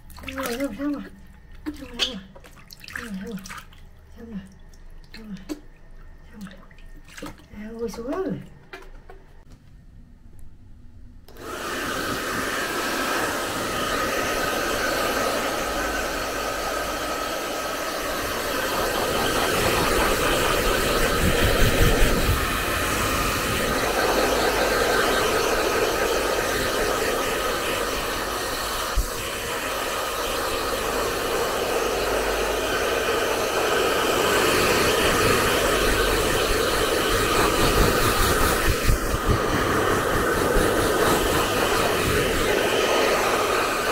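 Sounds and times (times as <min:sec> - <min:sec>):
hair dryer blowing: 0:11.3 - 0:43.9.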